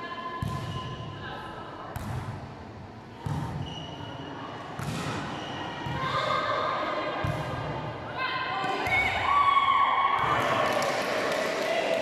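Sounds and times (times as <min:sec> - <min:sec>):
volleyball hits echoing: 0:04.8 - 0:06.4.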